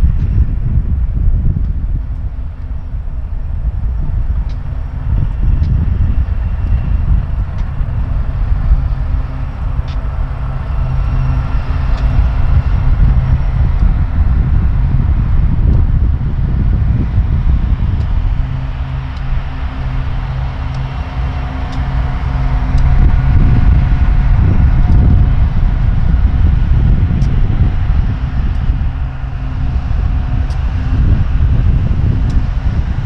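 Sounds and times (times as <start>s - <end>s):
diesel locomotive drone: 0.0s - 33.0s
train rolling rumble: 0.0s - 33.0s
wind buffeting microphone: 0.0s - 33.0s
faint ticks: 7.4s - 7.8s.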